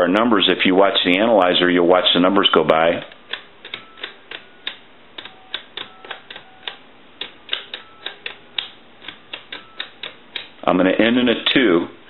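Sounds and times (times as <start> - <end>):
plastic keypad button clicks: 3.1 - 10.6.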